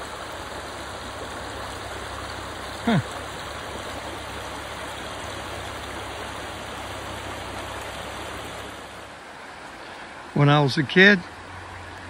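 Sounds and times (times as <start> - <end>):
creek flowing over rocks: 0.0 - 12.0.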